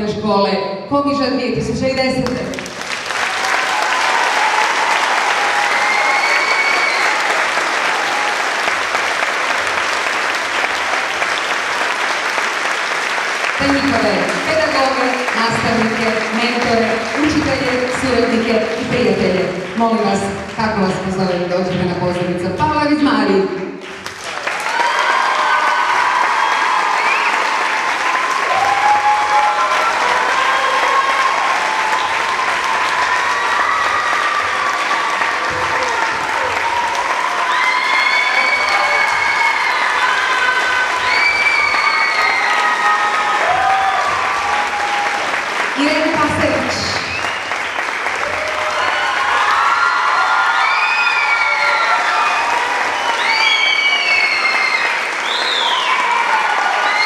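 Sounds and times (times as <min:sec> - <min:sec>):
audience applauding: 0:02.2 - 0:21.0, 0:23.7 - 0:57.0.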